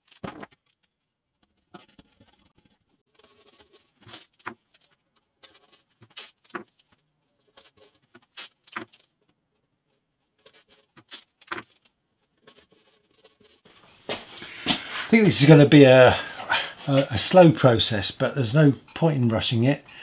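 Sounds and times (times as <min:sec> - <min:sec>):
masking tape ripping: 0:08.2 - 0:09.1.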